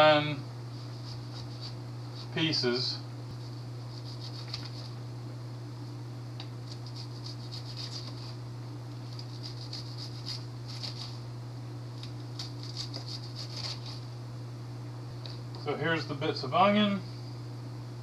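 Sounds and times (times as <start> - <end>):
steady low hum: 0.0 - 18.0
knife chopping onion: 6.6 - 8.4, 9.1 - 11.2, 12.0 - 14.0.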